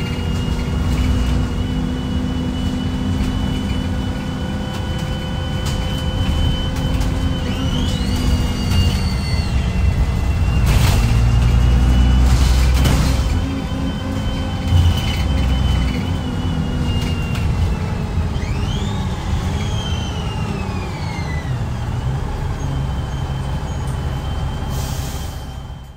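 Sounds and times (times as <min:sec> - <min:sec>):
second rising whine: 0:00.0 - 0:24.7
bus diesel engine whining: 0:00.0 - 0:25.9.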